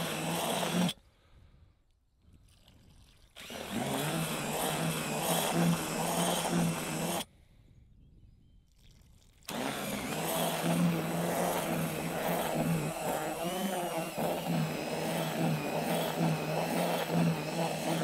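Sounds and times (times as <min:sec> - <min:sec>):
drill mixing in bucket: 0:00.0 - 0:01.0, 0:03.3 - 0:07.3, 0:09.4 - 0:18.0.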